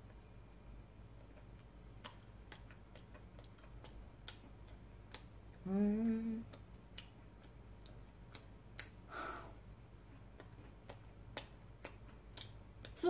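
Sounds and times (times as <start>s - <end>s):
soft breathy sound: 9.1s - 9.6s.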